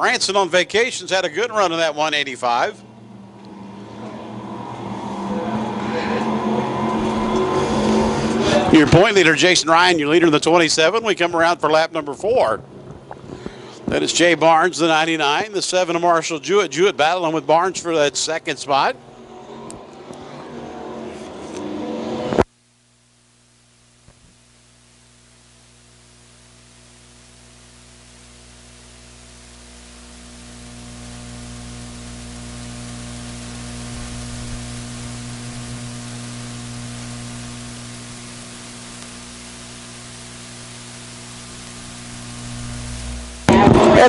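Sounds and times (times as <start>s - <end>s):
steady hum with hiss: 0.0s - 44.0s
race cars on dirt track: 3.5s - 8.8s.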